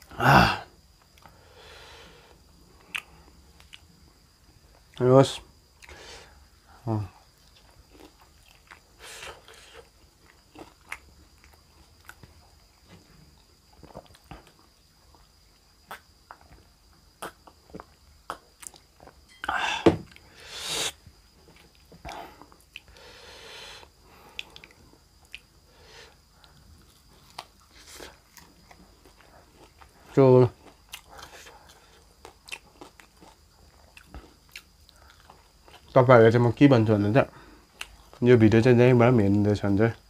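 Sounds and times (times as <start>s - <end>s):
person biting and chewing food: 2.8s - 3.9s, 7.4s - 12.3s, 30.6s - 35.9s
mouth clicks: 17.2s - 17.6s, 18.2s - 18.8s.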